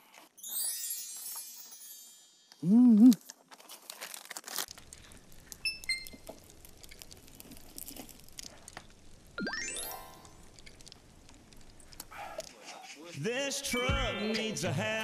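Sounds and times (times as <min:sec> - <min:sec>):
plastic bag crinkling: 0:03.1 - 0:09.4, 0:10.1 - 0:12.1.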